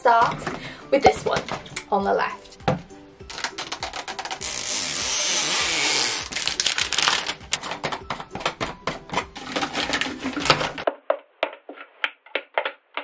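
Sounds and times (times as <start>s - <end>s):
plastic wrapping tearing: 3.3s - 7.9s, 9.2s - 10.9s
plastic crinkling and crackling: 3.3s - 13.0s.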